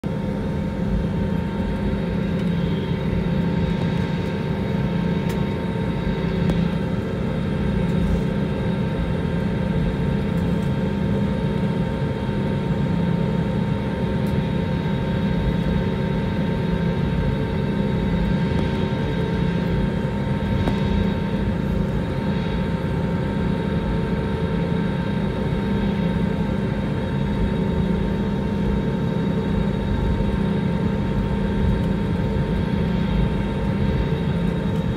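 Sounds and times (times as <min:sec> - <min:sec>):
jet engines humming: 0:00.0 - 0:34.9.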